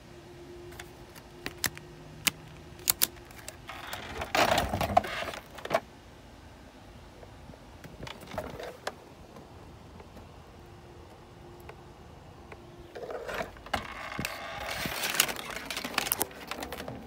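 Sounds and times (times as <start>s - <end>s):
rustling and scraping: 3.1s - 5.9s, 8.0s - 9.0s, 12.9s - 17.0s.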